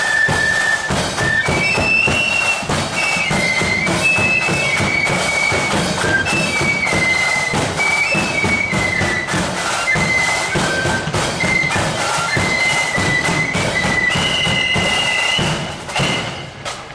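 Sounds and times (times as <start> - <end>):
flutes playing a melody: 0.0 - 16.8
marching drums: 0.0 - 16.9.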